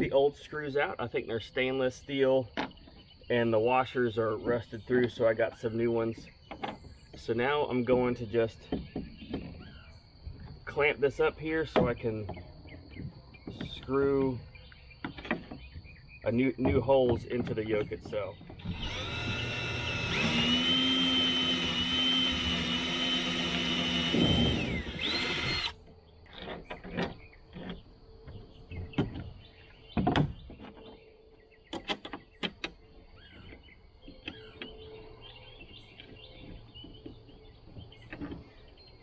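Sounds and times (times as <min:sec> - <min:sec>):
cordless drill motor whining: 0:18.6 - 0:25.8.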